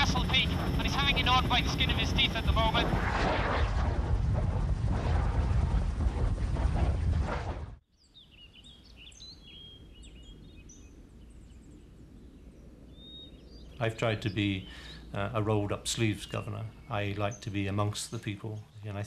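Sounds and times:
helicopter rotor and engine: 0.0 - 3.4
small birds chirping: 7.9 - 19.0.

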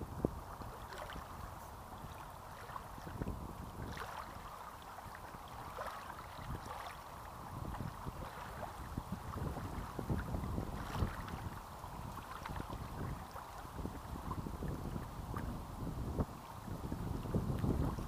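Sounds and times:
small waves lapping on sand: 0.0 - 18.0
wind rumble on microphone: 0.0 - 18.0.

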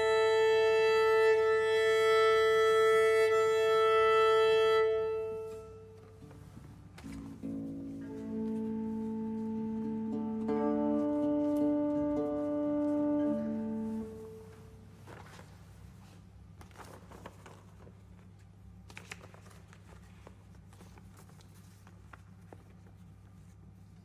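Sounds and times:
sheet music rustling: 0.0 - 24.0
organ and lute chord: 8.0 - 14.4.

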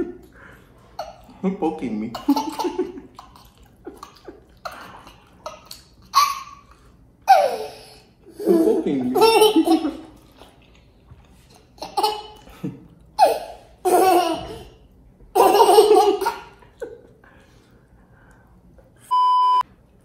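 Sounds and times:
toddler laughing: 2.2 - 10.2, 13.2 - 17.0.

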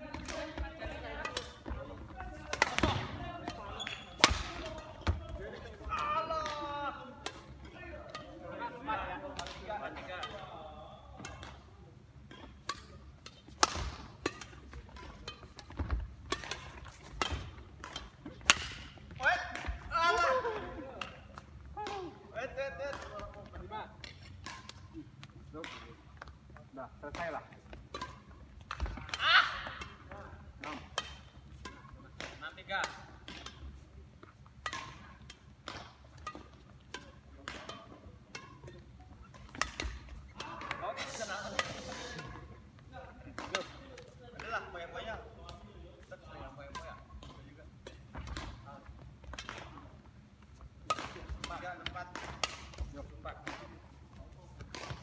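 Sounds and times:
rackets striking shuttlecock: 0.0 - 22.2, 22.8 - 26.4, 27.0 - 42.4, 46.6 - 50.0, 50.8 - 53.9, 54.6 - 55.0
shoes squeaking on wooden court: 3.4 - 5.3.

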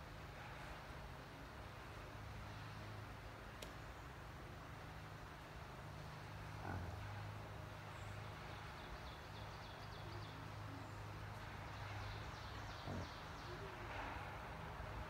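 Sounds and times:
steady low hum: 0.0 - 15.0
pig grunting: 6.5 - 7.3, 12.8 - 13.2
faint bird chirps: 11.8 - 14.3.

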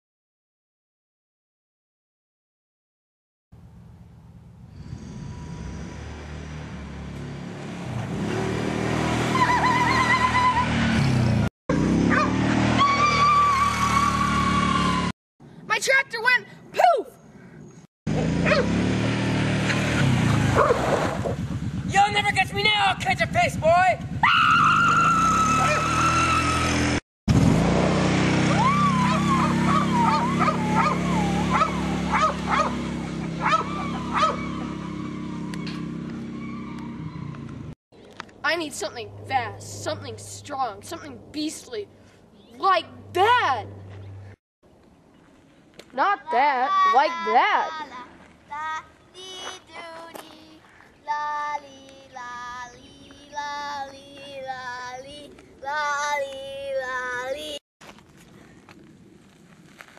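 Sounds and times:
four-wheeler engine running: 4.8 - 15.1, 18.1 - 37.7, 42.6 - 44.4
wavering whining calls and yips: 28.6 - 37.4
high-pitched voice singing: 46.7 - 57.6.

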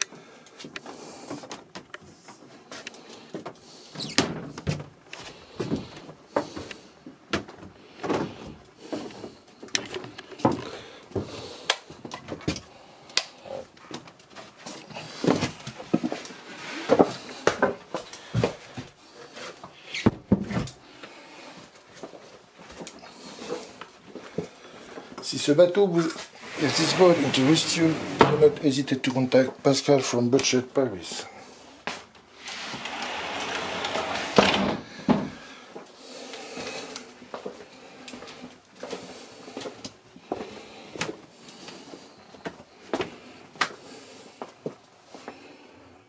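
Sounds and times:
small knocks and bumps: 0.6 - 11.3.

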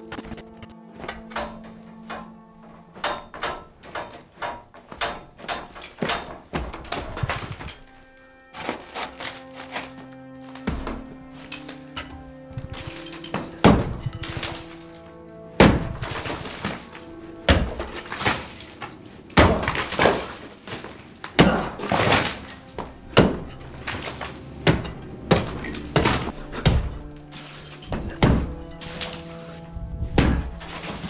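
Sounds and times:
background music: 0.0 - 31.0
rubble clattering down: 1.0 - 26.3
heavy blows breaking floor: 1.0 - 29.4, 30.1 - 31.0.

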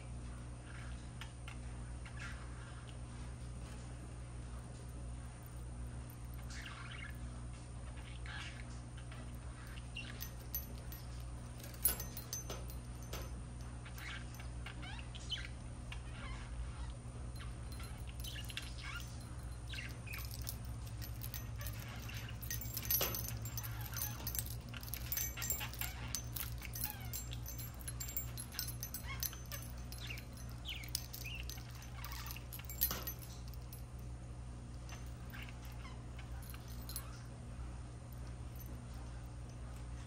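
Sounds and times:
steady low hum: 9.0 - 14.5, 17.1 - 40.0.

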